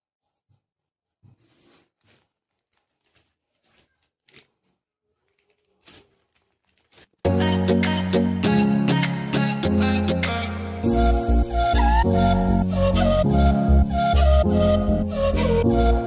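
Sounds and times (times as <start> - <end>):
plastic bag rustling and tearing: 1.4 - 7.3
loud music: 7.3 - 16.0.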